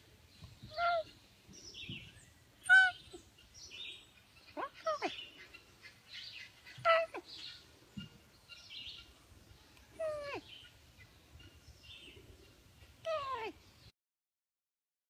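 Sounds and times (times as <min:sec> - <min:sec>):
cat meowing: 0:06.8 - 0:07.3, 0:10.0 - 0:10.4, 0:13.1 - 0:13.6.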